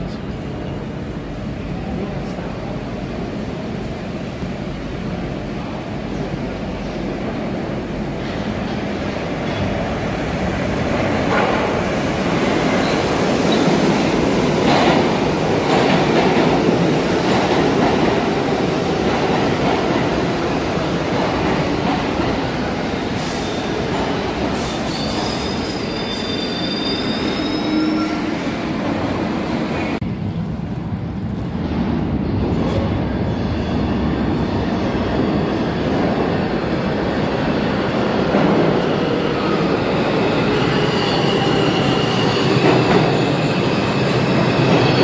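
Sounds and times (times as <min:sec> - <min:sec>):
subway train wheels rumbling on rail: 0:00.0 - 0:45.0
high wheel squeal: 0:24.6 - 0:28.4, 0:40.4 - 0:45.0.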